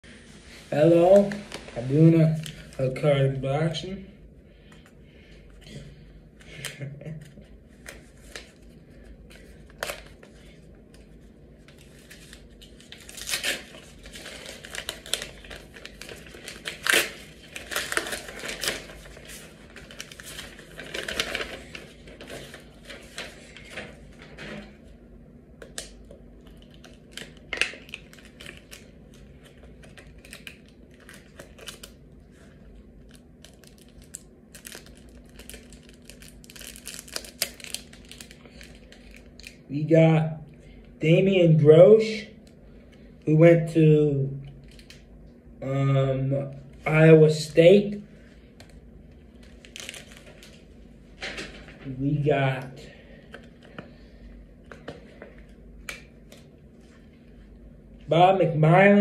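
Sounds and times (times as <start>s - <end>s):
paper wrapper crinkling and tearing: 6.5s - 24.4s, 25.6s - 39.6s, 48.5s - 52.0s.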